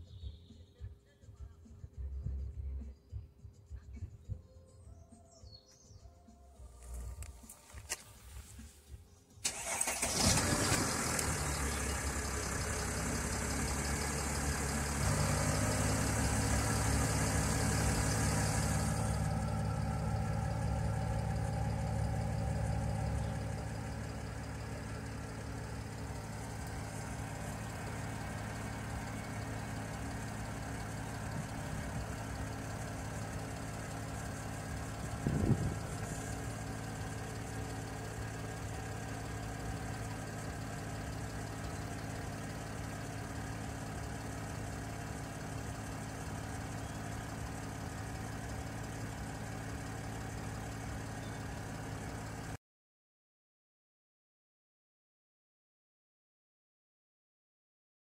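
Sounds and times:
car engine idling: 6.5 - 52.6.

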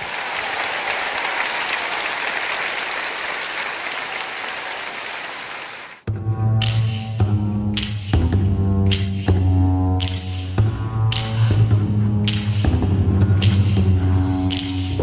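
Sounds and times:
audience applauding: 0.0 - 6.0
music with deep bass: 6.1 - 15.0.

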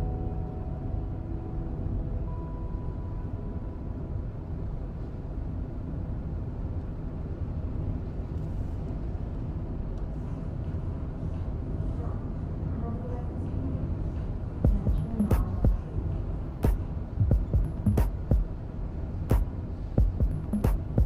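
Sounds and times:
car driving rumble inside cabin: 14.7 - 21.0.

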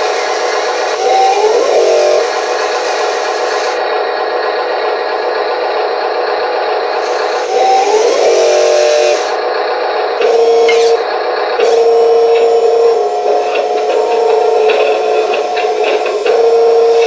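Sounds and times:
toy motors whirring and grinding: 0.0 - 3.8, 7.0 - 9.4, 10.2 - 11.0, 11.6 - 17.0.

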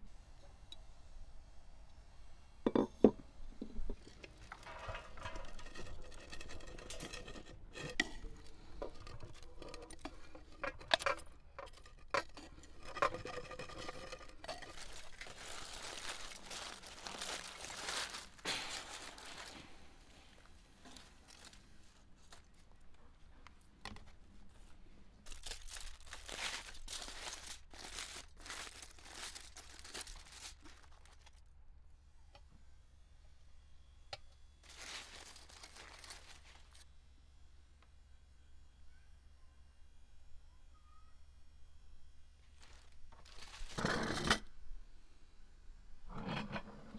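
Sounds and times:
aluminium foil crinkling: 3.8 - 31.5, 34.6 - 36.9, 42.4 - 44.3.

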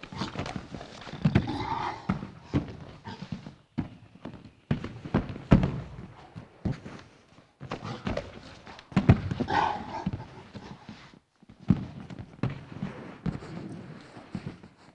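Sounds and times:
shoes scuffing on mat: 2.0 - 14.9
bodies thudding onto mat: 4.7 - 7.0.

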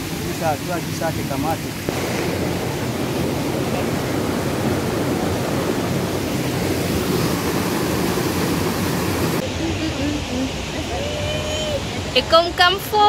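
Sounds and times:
waterfall rushing over rocks: 0.0 - 12.3.

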